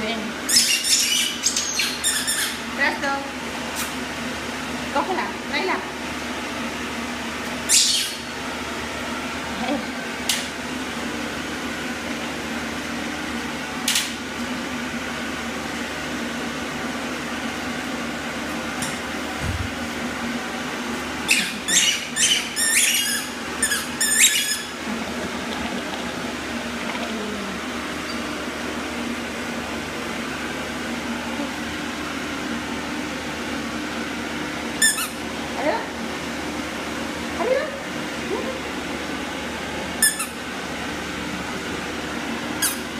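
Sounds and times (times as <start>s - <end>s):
steady mechanical hum: 0.0s - 42.9s
sharp squeaks and clicks: 0.5s - 2.6s, 7.7s - 8.2s, 21.3s - 24.7s.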